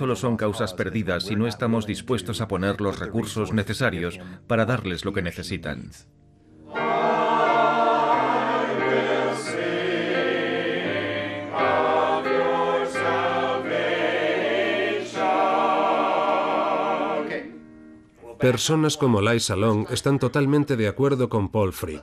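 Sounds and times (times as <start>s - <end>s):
choir singing sustained chords: 6.5s - 18.8s.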